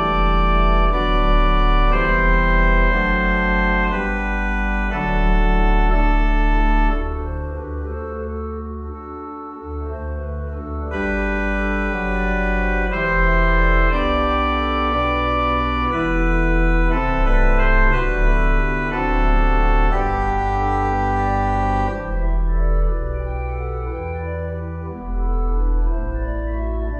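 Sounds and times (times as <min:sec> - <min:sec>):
organ music: 0:00.0 - 0:26.9.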